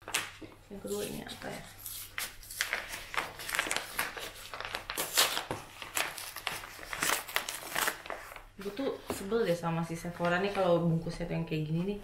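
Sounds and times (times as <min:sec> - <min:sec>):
packing material crinkling: 0:00.0 - 0:09.3.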